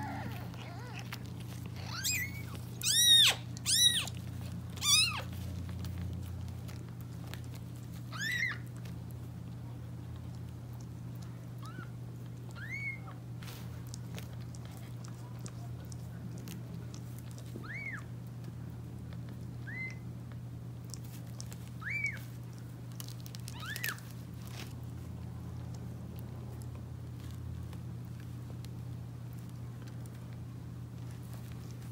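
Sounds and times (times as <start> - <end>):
newborn kitten mewing: 0.0 - 4.2, 4.8 - 5.4, 8.1 - 8.7, 12.5 - 13.2
steady low hum: 0.0 - 31.9.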